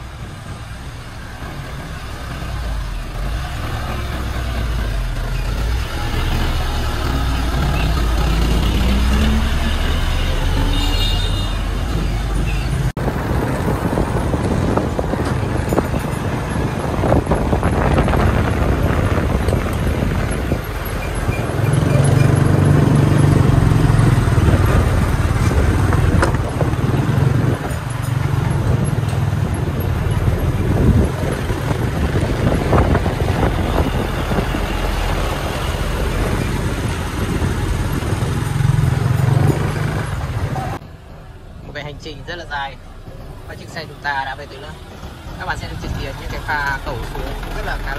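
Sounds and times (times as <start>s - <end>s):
wind rushing over microphone: 11.6s - 40.8s.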